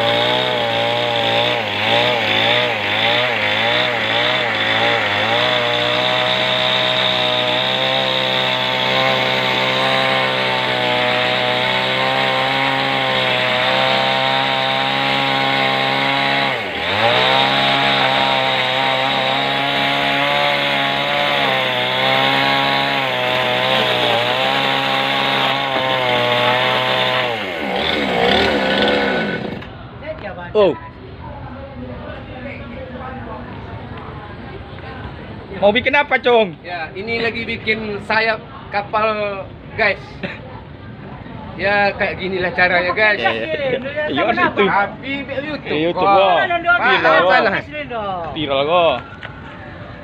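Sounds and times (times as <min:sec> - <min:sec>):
chainsaw cutting wood: 0:00.0 - 0:29.7.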